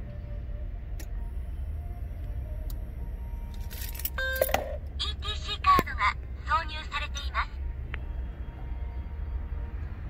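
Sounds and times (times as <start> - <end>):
low rumble inside a car: 0.0 - 10.0
short electronic beep: 4.2 - 4.8.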